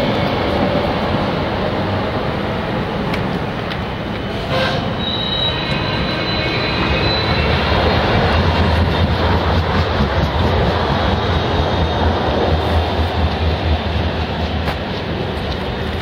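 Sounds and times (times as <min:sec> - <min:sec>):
tram low rumble: 0:00.0 - 0:16.0
tram wheels squealing: 0:04.2 - 0:16.0.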